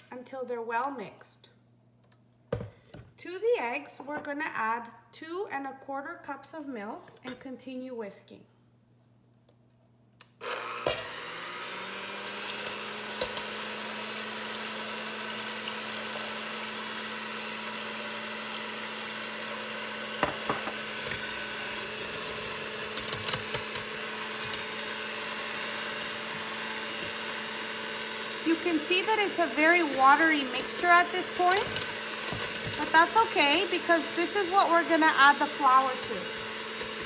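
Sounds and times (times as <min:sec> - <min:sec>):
electric hand mixer humming: 0:10.4 - 0:37.0
mixer clicks: 0:20.2 - 0:37.0.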